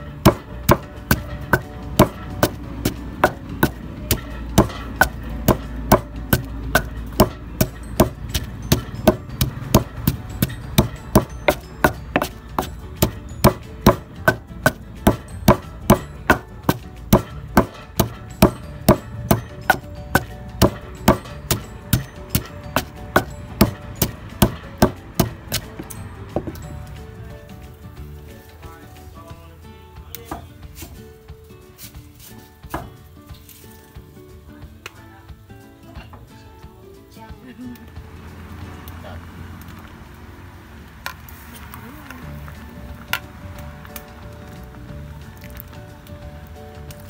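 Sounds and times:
wooden pestle pounding paste in mortar: 0.0s - 26.8s, 32.7s - 33.0s.

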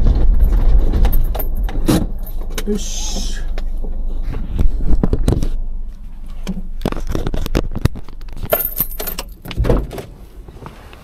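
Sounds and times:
sharp clicks and metallic clinks: 6.8s - 9.6s.

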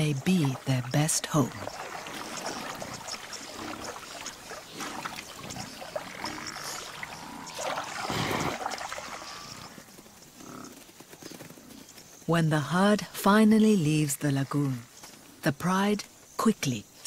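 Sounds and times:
water and mud sloshing: 0.0s - 10.0s.

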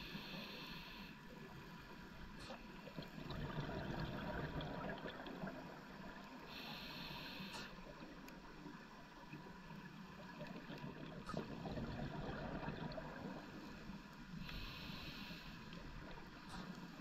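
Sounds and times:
regulator inhale hiss: 0.0s - 2.8s, 6.3s - 8.2s, 13.4s - 17.0s
bubbling exhale underwater: 3.0s - 6.0s, 10.8s - 13.5s.

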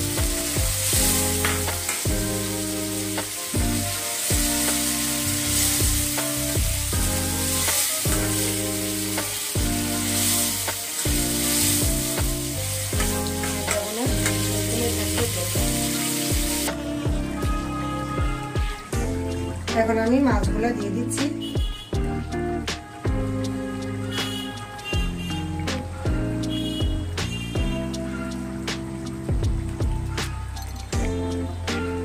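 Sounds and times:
background music with bass: 0.0s - 32.0s
curry sizzling and bubbling: 0.0s - 32.0s
spatula stirring in metal pan: 7.1s - 15.7s.

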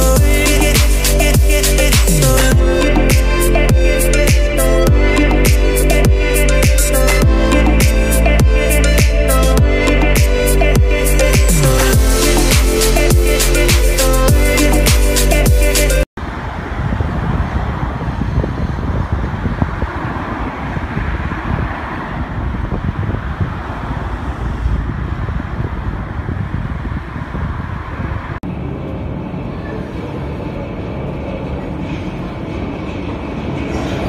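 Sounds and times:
steady tones: 0.0s - 16.1s
train rumbling along track: 16.2s - 34.0s
metro train running noise: 23.2s - 34.0s.

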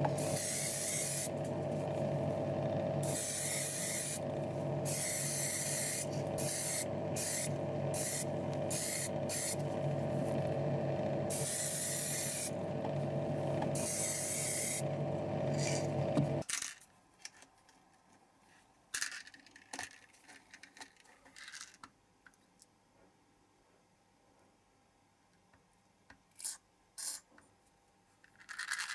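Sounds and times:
spray booth machinery humming: 0.0s - 16.4s
paint spraying in hissing bursts: 0.2s - 1.4s, 3.0s - 4.2s, 4.8s - 10.3s, 11.3s - 12.6s, 13.8s - 14.8s
small parts clicking in plastic tub: 16.4s - 17.5s, 18.9s - 22.4s, 28.2s - 28.9s.

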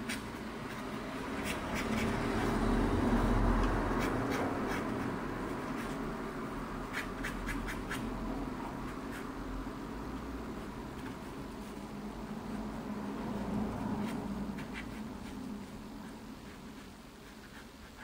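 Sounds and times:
pen scratching on paper: 0.0s - 2.6s, 3.6s - 6.1s, 6.8s - 8.1s, 14.0s - 18.0s.

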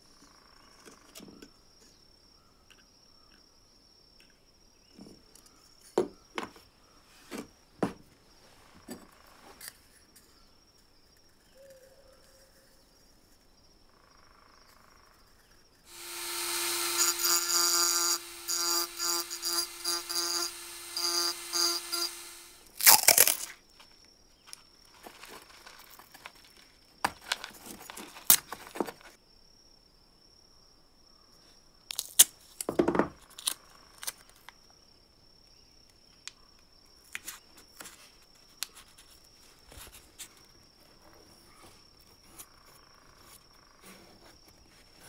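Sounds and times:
rotary tool whine: 15.9s - 23.5s.

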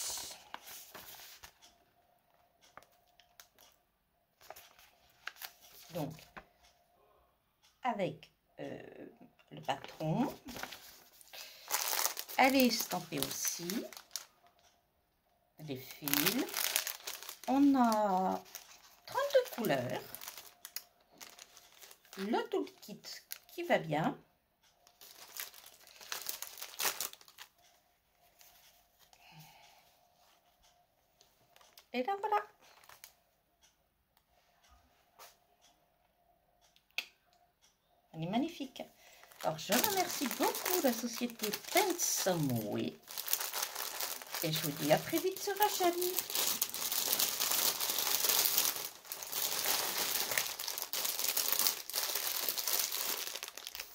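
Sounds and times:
plastic packaging crinkling: 0.0s - 1.6s, 4.4s - 6.4s, 9.8s - 14.6s, 15.7s - 23.6s, 24.8s - 27.6s, 32.7s - 33.1s, 39.0s - 53.9s.

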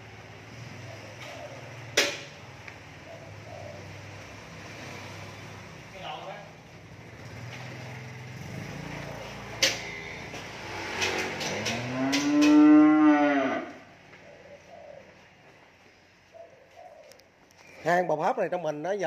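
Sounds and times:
cow mooing: 11.4s - 13.9s.

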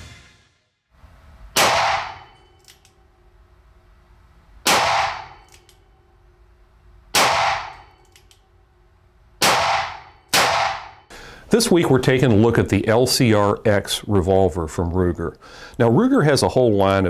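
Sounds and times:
revolver gunshots: 1.5s - 2.5s, 4.6s - 5.5s, 7.1s - 8.0s, 9.4s - 11.1s.

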